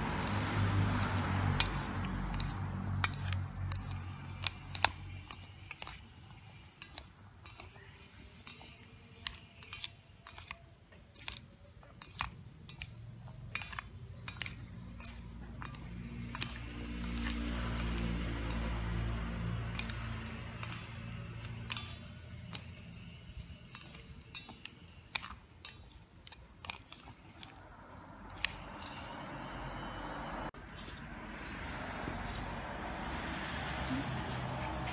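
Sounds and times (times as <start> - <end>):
chopsticks tapping a metal bowl: 0.2 - 6.0, 6.8 - 27.6.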